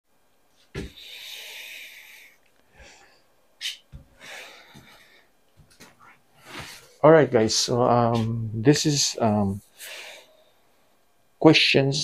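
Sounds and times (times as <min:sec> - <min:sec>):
breathy hiss: 0:00.8 - 0:05.3, 0:09.2 - 0:10.6
person moving near microphone: 0:05.6 - 0:08.4.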